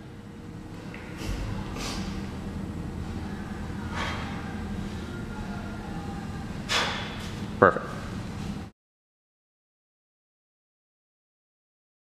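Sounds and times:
steady low hum: 0.0 - 8.7.

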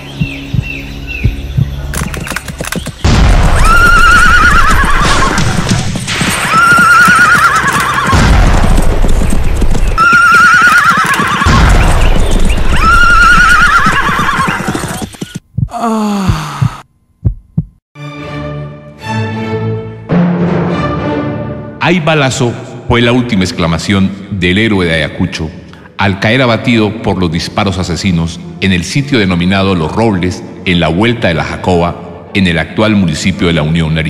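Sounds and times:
thudding hoofbeats: 0.1 - 17.8
horse neighing: 3.6 - 5.4, 6.5 - 8.2, 10.0 - 11.6, 12.7 - 15.2.

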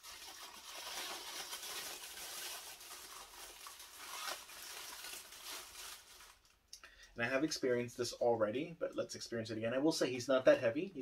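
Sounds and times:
packing wrap crinkling: 0.0 - 6.6.

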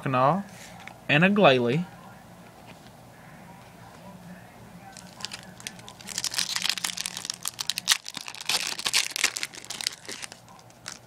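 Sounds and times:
foil wrapper crinkling: 4.9 - 11.0
foil pack tearing: 5.0 - 11.0.

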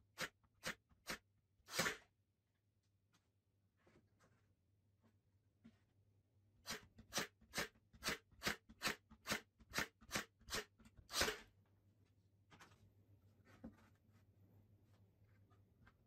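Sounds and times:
nail gun shots: 6.7 - 11.4.

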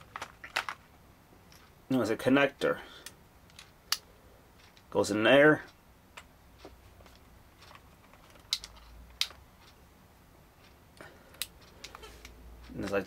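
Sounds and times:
screwdriver bits clicking in case: 7.6 - 9.8.

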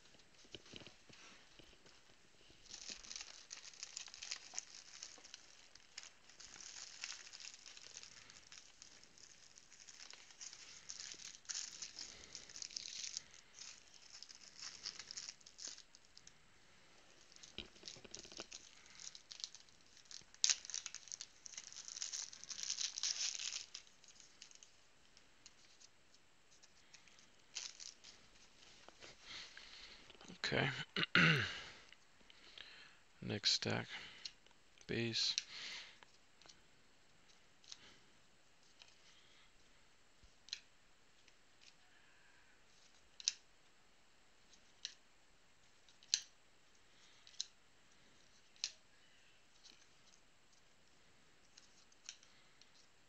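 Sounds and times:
plastic card sleeves rustling: 0.0 - 16.4, 17.0 - 24.8, 25.4 - 30.0.

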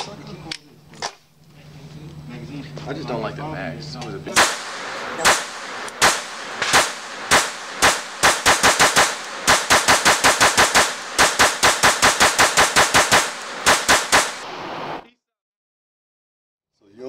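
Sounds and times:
pistol shots: 4.4 - 14.5.

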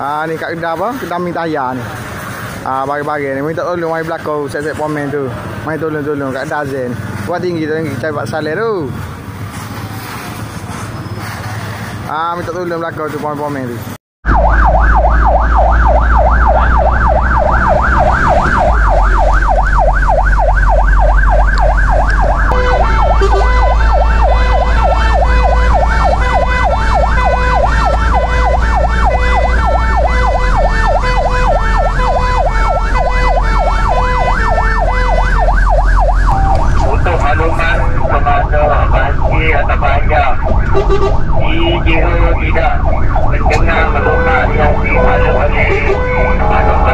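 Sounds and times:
low engine and road rumble: 0.0 - 46.9
fire engine electronic siren: 14.2 - 46.9.

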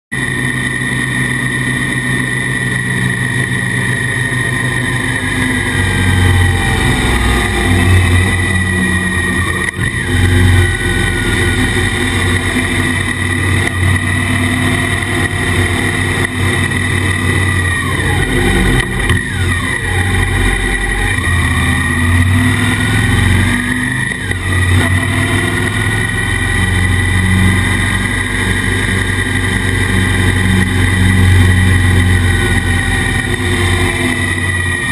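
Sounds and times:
muffled motorcycle engine running: 0.1 - 34.9.

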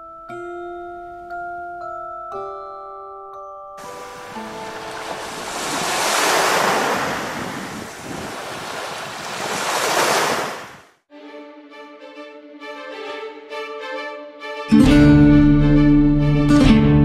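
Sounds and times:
ocean surf washing onto beach: 3.8 - 10.9.

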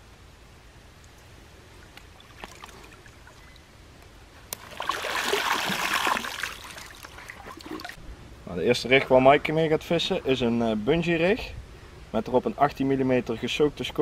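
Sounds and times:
faint water movement: 0.9 - 8.2
fish splashing in water: 2.0 - 3.6, 4.6 - 8.0.

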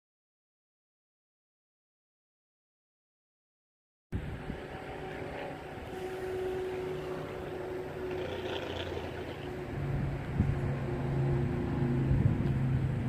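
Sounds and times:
distant engine drone: 4.2 - 13.0
low hum: 4.2 - 13.0.

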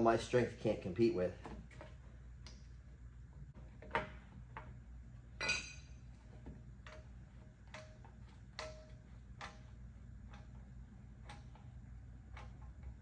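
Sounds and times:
metallic ring: 5.4 - 6.1.

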